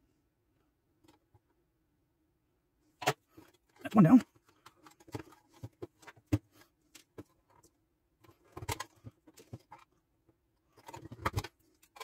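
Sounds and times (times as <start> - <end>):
small clicks and rattles of wires: 3.0 - 12.0.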